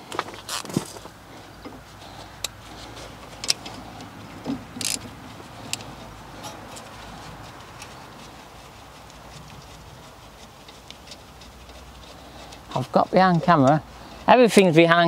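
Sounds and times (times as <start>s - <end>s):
short rustle: 0.0s - 15.0s
metallic clicks of wrench and socket: 4.8s - 5.0s.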